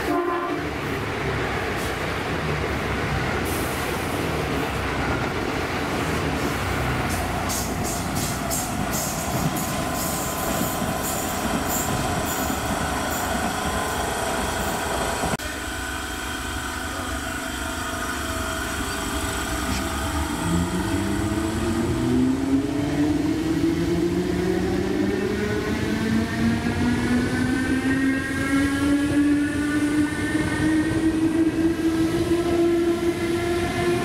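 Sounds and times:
train running noise: 0.0 - 34.0
train traction motors whining: 7.1 - 22.2.

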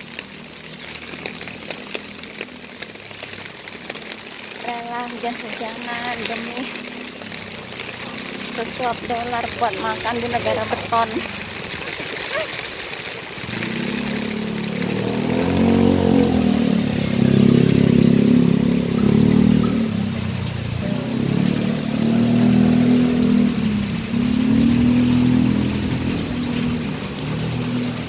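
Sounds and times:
rain hissing: 0.0 - 28.0
vehicle engine revving: 13.4 - 28.0.

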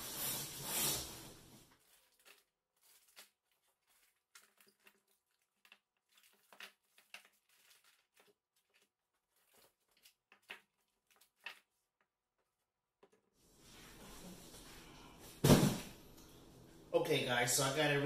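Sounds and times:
plastic crinkling: 1.6 - 12.1.

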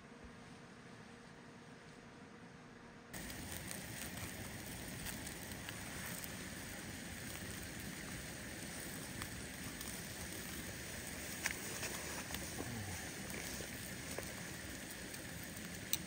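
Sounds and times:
steaks sizzling on a grill: 3.2 - 16.0
wood fire crackling and popping: 3.2 - 16.0.

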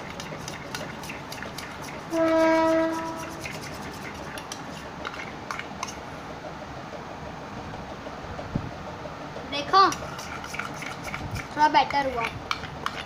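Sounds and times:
spoon stirring slime in steel bowl: 0.0 - 6.0, 9.8 - 13.0
horn blast: 2.1 - 3.4.

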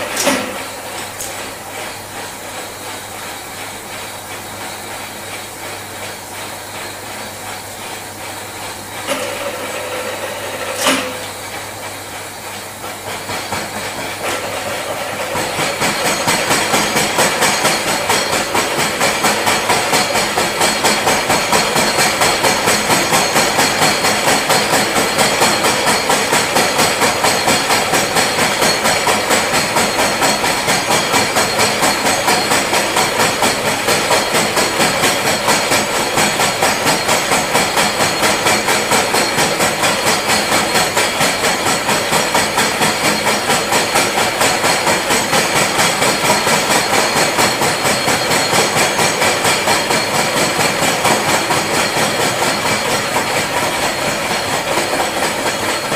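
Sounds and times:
face mill cutting metal: 0.0 - 2.1, 8.8 - 12.1, 14.0 - 55.9
milling machine running: 0.0 - 55.9
sharp knocks: 9.1 - 11.4.

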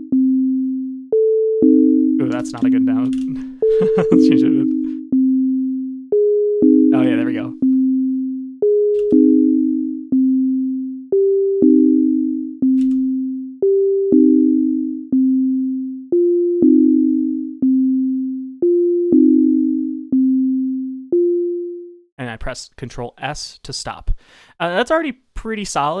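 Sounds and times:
sine tone synth pattern: 0.0 - 22.1.

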